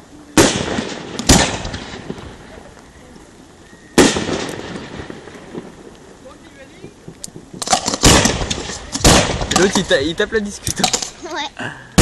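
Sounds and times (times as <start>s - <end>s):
echo of bangs: 0.4s - 2.2s, 4.0s - 5.7s, 7.8s - 9.8s
firework shells bursting: 0.4s - 3.0s, 3.7s - 11.2s.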